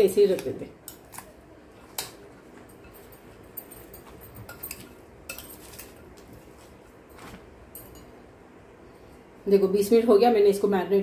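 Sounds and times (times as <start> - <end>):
metal spoon clinking glass bowl: 2.7 - 6.0, 7.7 - 8.2.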